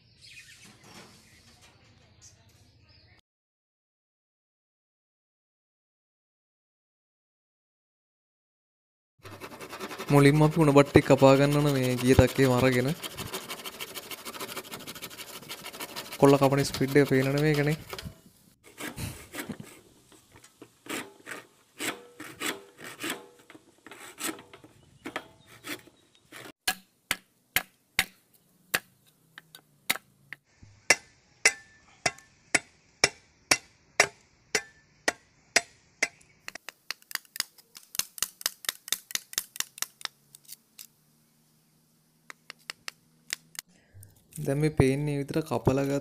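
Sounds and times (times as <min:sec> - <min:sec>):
knife chopping bamboo: 0:20.9 - 0:23.4, 0:26.6 - 0:28.2, 0:30.9 - 0:40.5.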